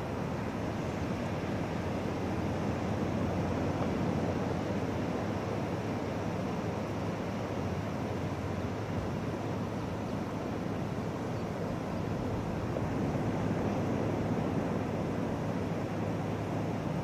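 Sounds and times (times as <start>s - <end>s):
ocean surf: 0.0s - 17.0s
wind noise on microphone: 10.9s - 17.0s.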